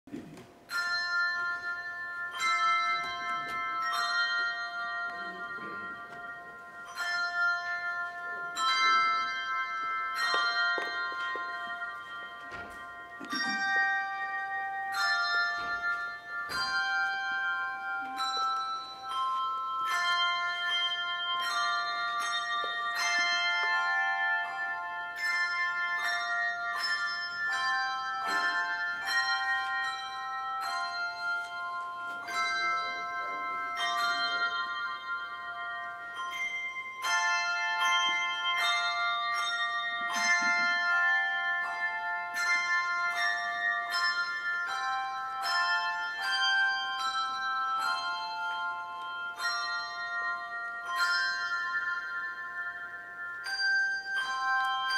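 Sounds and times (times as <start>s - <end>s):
bell melody: 0.4s - 54.9s.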